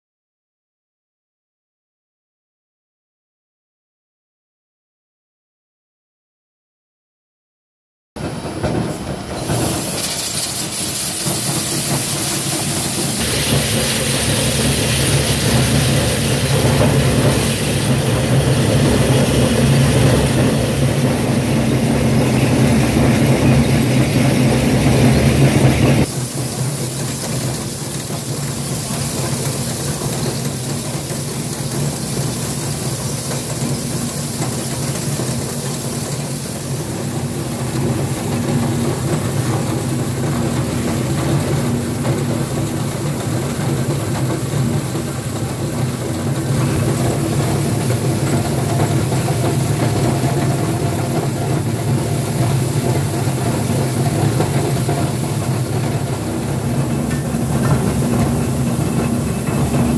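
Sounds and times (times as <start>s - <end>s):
scrap chopper machine hum: 8.2s - 59.9s
rattle of material being cut: 9.4s - 24.5s.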